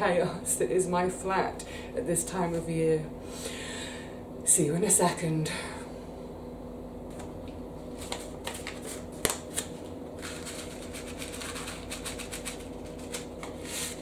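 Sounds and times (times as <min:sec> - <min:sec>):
paper seed packet rustling: 0:07.9 - 0:14.0.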